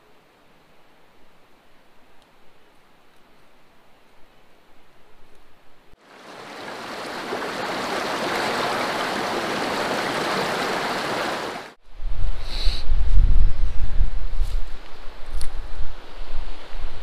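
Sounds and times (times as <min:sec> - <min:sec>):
stream running over rocks: 0:06.0 - 0:11.8
wind rumble on microphone: 0:11.8 - 0:17.0.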